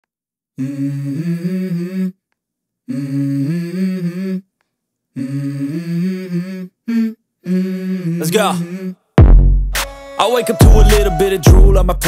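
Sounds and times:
person humming melody: 0.6 - 2.2, 5.2 - 9.0, 10.2 - 12.0.

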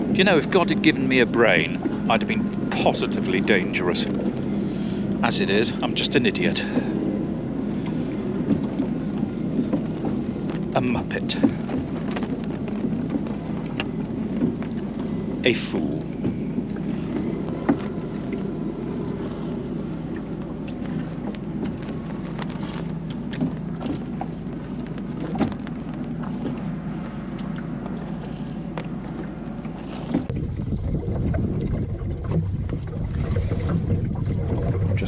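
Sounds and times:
water washing along hull: 0.0 - 35.0
wind on microphone: 0.0 - 35.0
boat clicks and knocks: 7.8 - 15.1, 20.1 - 30.3.

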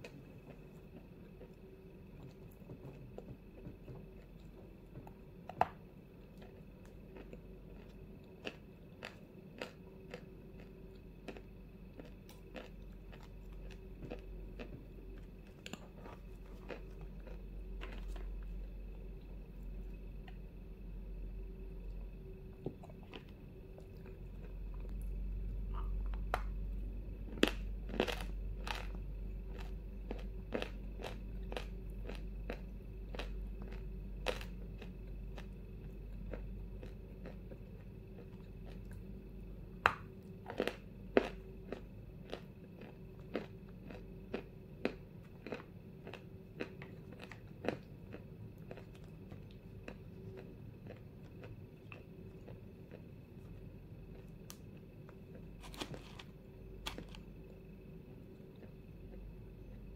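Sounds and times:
steady low hum: 0.0 - 59.9
crunching bites of chalk: 55.6 - 57.2.

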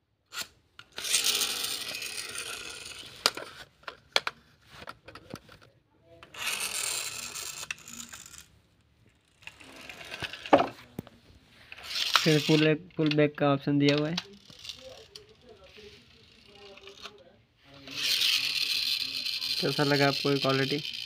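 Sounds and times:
toy pull-back motor whirring: 0.3 - 3.6, 6.3 - 8.5, 9.2 - 10.6, 11.8 - 12.7, 14.2 - 17.2, 17.8 - 21.0.

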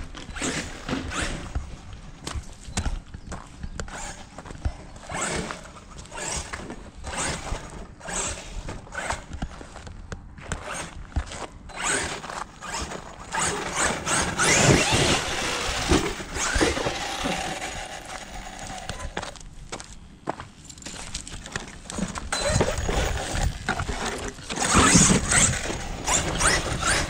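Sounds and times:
tyres churning through dirt: 0.0 - 19.5, 20.3 - 27.0
electric motor revving: 11.8 - 19.3, 22.4 - 27.0.

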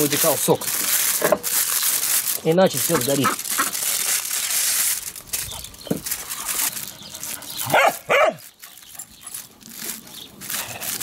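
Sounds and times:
aluminium foil crinkling: 0.0 - 11.0
dog yelping: 7.6 - 8.5
dog barking: 7.7 - 8.4.

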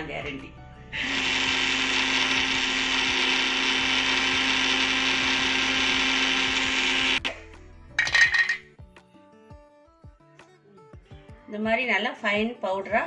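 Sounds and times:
mixer grinder running: 1.0 - 7.3.

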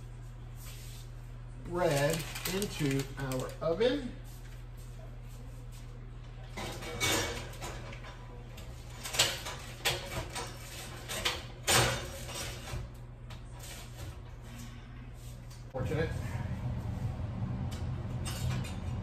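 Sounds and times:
steady low hum: 10.9 - 19.0.

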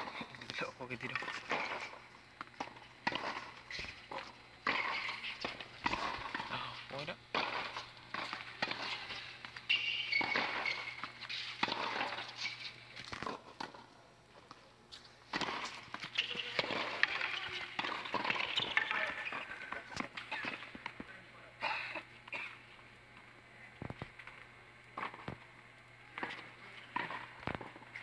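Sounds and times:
tennis ball hitting rackets: 0.0 - 6.7, 7.3 - 13.9, 15.3 - 21.0, 26.1 - 28.0
shoe squeaks: 8.9 - 12.9, 16.1 - 19.4.

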